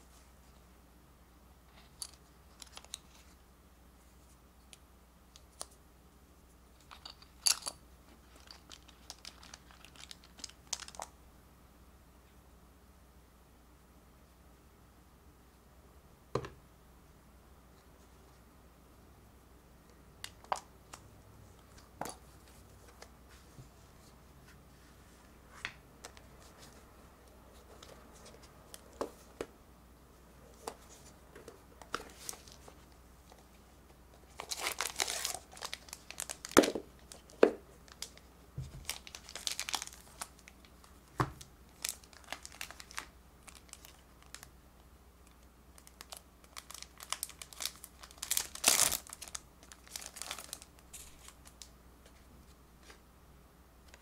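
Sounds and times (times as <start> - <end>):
cellophane crinkling: 6.9 - 11.1, 31.8 - 33.5, 34.2 - 44.5, 45.3 - 51.7
cellophane tearing: 34.3 - 37.3, 38.8 - 40.5, 41.8 - 44.5, 45.8 - 51.6.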